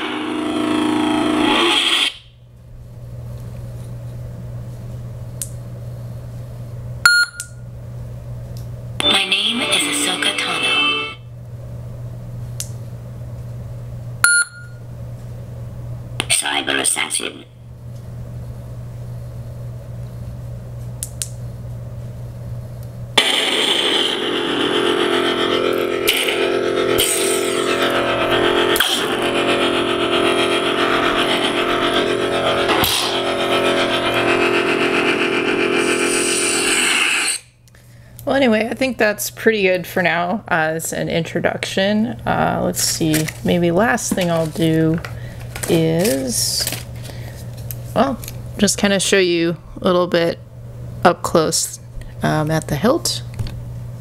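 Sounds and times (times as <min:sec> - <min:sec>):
loud many-toned lightsaber effect: 0:00.0 - 0:02.3, 0:23.2 - 0:37.5
low lightsaber idle hum: 0:00.0 - 0:08.7, 0:14.9 - 0:53.6
short beep: 0:07.1 - 0:07.5, 0:14.2 - 0:14.8.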